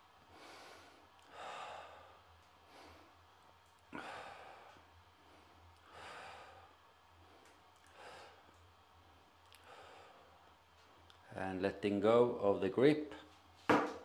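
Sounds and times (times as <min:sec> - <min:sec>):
faint low hum: 0:00.0 - 0:14.0
man breathing deeply: 0:00.2 - 0:03.3, 0:03.9 - 0:08.6, 0:09.5 - 0:10.6.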